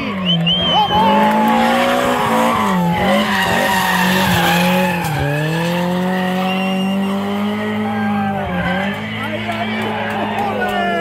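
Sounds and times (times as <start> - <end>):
rally car engine revving: 0.0 - 11.0
tyres squealing: 0.3 - 7.9.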